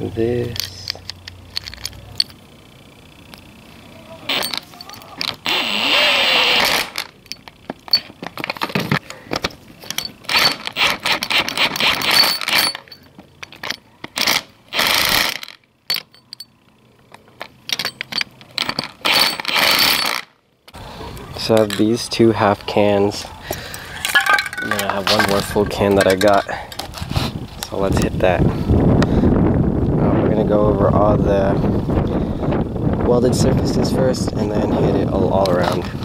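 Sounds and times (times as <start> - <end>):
small metal parts clinking: 0.3 - 2.5, 4.2 - 5.6, 6.5 - 20.4, 23.5 - 27.8.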